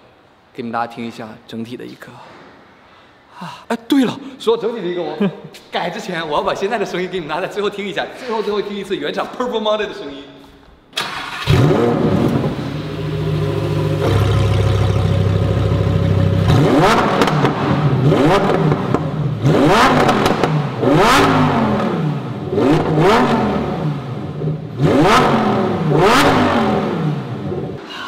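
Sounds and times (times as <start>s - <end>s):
car engine idling and revving: 11.1s - 27.8s.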